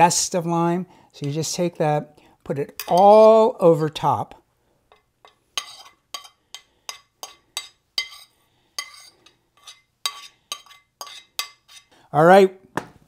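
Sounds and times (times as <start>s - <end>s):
utensil clinking against a dish: 4.9s - 11.9s.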